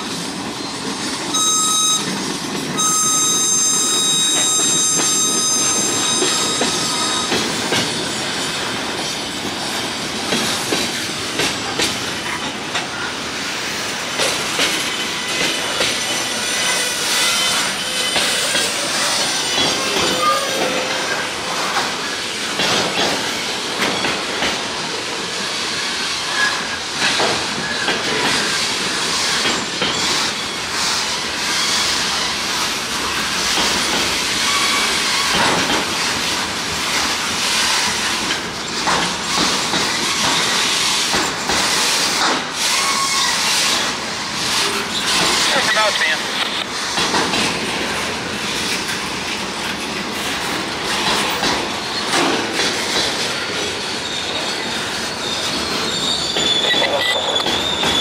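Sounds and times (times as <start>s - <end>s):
high wheel squeals: 0.6s - 8.4s, 14.8s - 21.7s, 34.4s - 36.1s, 42.6s - 46.2s, 53.4s - 58.0s
wheels clicking over rail joints: 33.1s - 42.9s, 46.4s - 53.8s.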